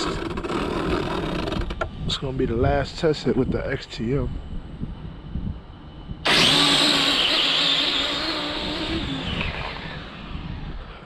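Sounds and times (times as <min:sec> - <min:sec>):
electric motor whine: 0:00.0 - 0:02.1, 0:04.8 - 0:11.0.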